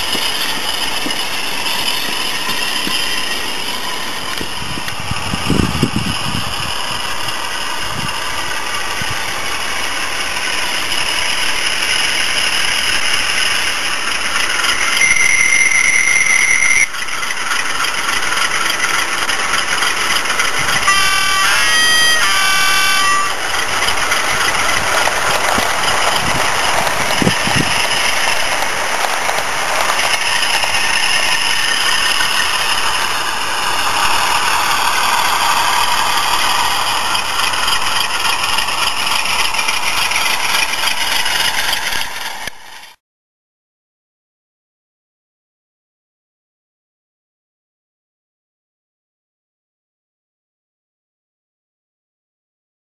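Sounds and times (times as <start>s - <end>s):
model diesel engine sound: 0.0s - 43.0s
locomotive horn blast: 15.0s - 16.9s, 20.4s - 26.5s
short two-tone horn notes: 20.7s - 23.4s.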